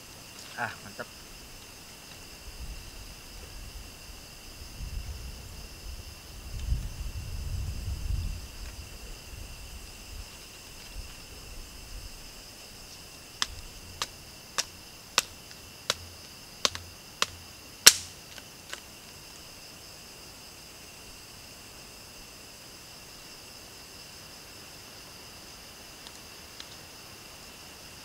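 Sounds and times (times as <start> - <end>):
night insects chirring: 0.0 - 28.0
short sharp snaps: 16.6 - 18.8.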